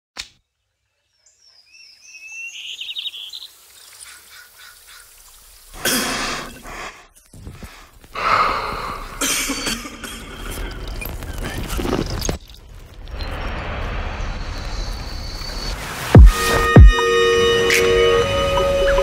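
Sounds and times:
birds chirping: 0.6 - 7.8, 14.8 - 19.0
man coughing: 9.2 - 10.4.

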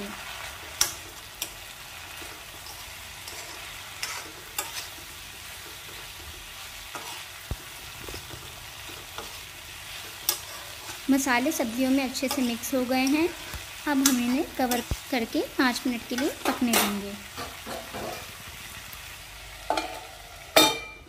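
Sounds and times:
low sizzle of frying: 0.0 - 21.0
metal spoon scraping pan: 0.7 - 6.0, 6.9 - 7.3, 8.9 - 14.9, 16.1 - 18.4.

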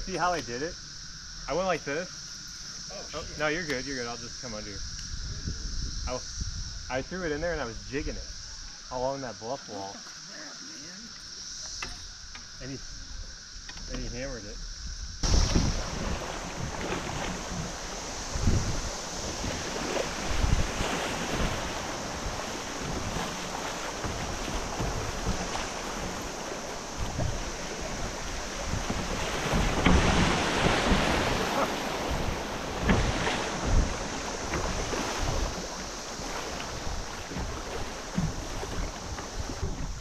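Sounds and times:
wind buffeting microphone: 3.2 - 8.7, 14.7 - 40.0
rushing river water: 15.2 - 40.0.

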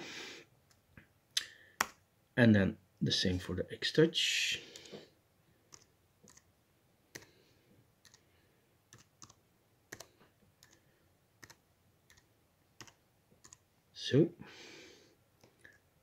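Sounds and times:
slow keyboard typing: 5.6 - 6.5, 7.1 - 13.7.

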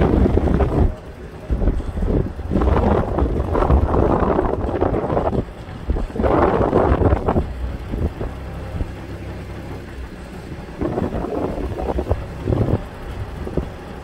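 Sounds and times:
wind buffeting microphone: 0.0 - 9.0, 10.6 - 14.0
car driving rumble: 0.0 - 14.0.

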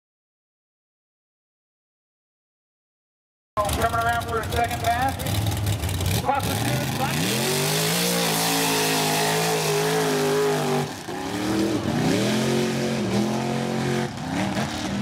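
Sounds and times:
buggy engine revving: 3.6 - 15.0.

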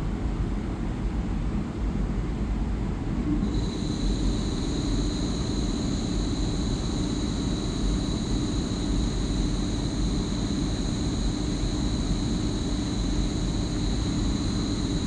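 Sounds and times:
high whine: 3.4 - 15.0.

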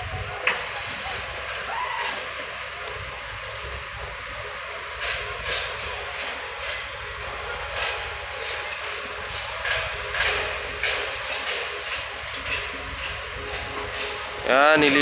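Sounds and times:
construction machinery rumbling: 0.0 - 15.0.

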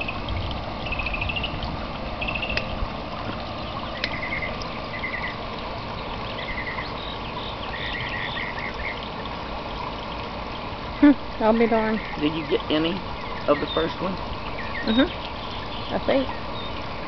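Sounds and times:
water trickling: 0.0 - 17.0
high chirping trills: 11.9 - 16.8.

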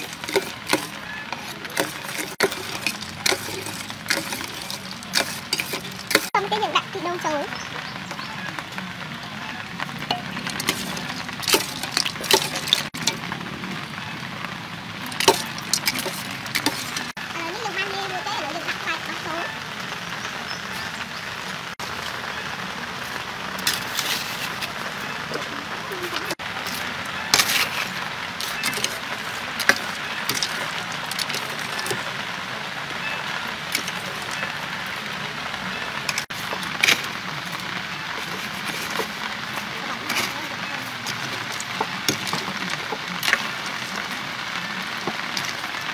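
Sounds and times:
ladle stirring in metal bowl: 0.0 - 6.4, 10.0 - 13.3, 15.1 - 17.2, 26.1 - 32.2, 33.7 - 34.5, 36.1 - 44.1
steady background noise: 0.0 - 45.9.

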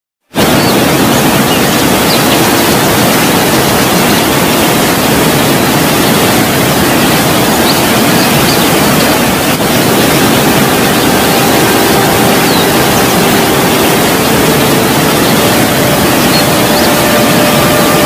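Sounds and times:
waterfall rushing: 0.3 - 18.0.

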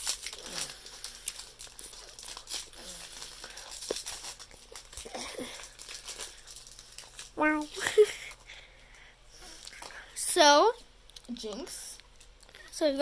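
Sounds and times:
foil pack crinkling: 0.0 - 8.6.

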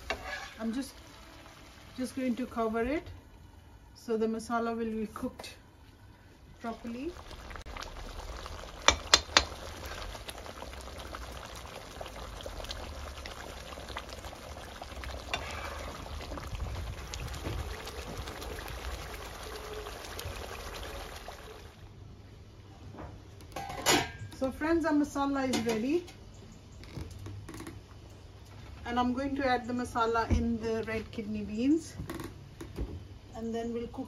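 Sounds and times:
ladle stirring: 0.0 - 1.3, 14.8 - 20.1
sauce bubbling and spluttering: 6.6 - 21.8.

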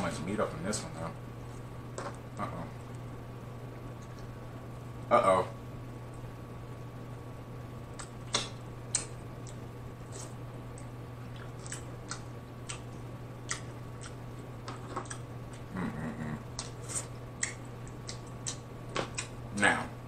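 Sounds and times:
low background hum: 0.0 - 20.0
wet mouth eating sounds: 8.0 - 14.2, 14.8 - 19.4
person humming mm: 15.6 - 17.1.

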